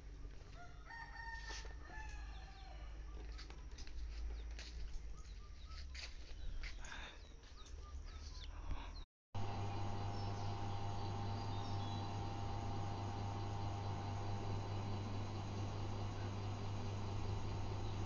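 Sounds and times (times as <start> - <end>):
rooster crowing: 0.5 - 3.0.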